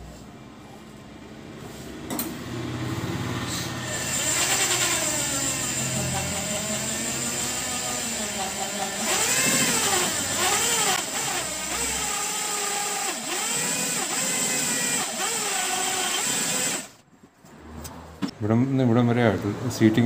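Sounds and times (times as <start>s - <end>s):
electric drill motor whine: 3.9s - 17.0s.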